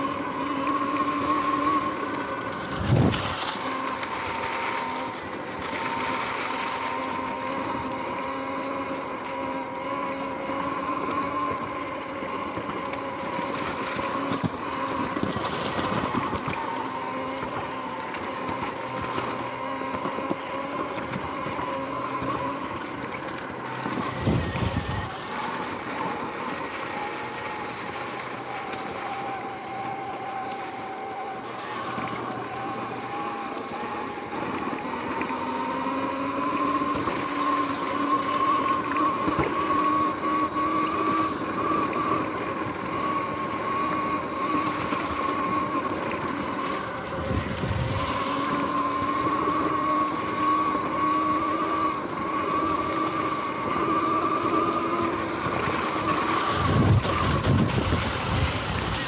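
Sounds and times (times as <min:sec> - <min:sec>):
electric motor whine: 0:00.0 - 0:59.0
rush of tyres and wind: 0:02.6 - 0:06.8, 0:24.0 - 0:25.2, 0:46.8 - 0:49.0, 0:56.5 - 0:59.0.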